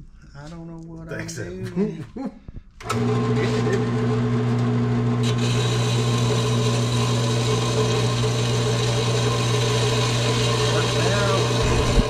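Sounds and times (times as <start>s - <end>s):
power tool humming and hissing: 2.9s - 12.0s.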